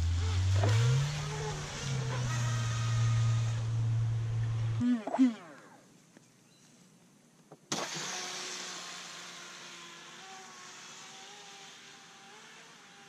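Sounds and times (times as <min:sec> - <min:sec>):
motor whine: 0:00.0 - 0:05.9.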